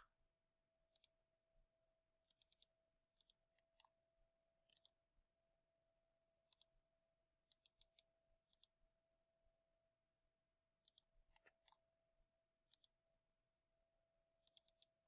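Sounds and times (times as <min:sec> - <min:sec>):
computer mouse clicks: 0:02.2 - 0:03.9, 0:04.7 - 0:05.0, 0:06.5 - 0:06.7, 0:07.5 - 0:08.7, 0:10.8 - 0:11.8, 0:12.7 - 0:13.0, 0:14.4 - 0:15.0.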